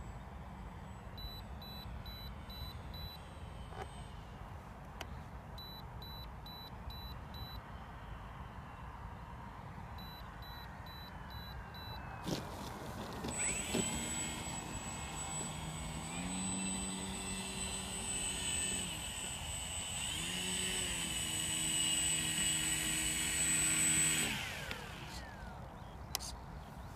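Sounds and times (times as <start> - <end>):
model plane electric motor whining: 2.4 - 4.4, 12.3 - 25.8.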